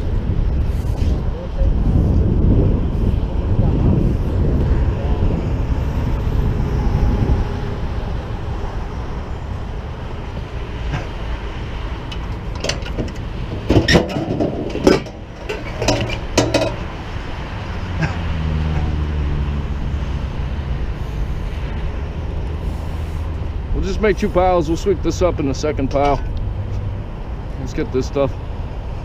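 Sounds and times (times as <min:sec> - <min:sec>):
freeway traffic rumble: 0:00.0 - 0:29.0
hard objects clattering: 0:12.1 - 0:17.0.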